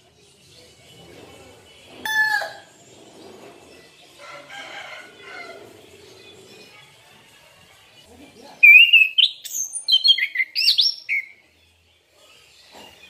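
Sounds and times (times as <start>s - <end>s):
thrush singing whistled notes: 8.6s - 11.4s.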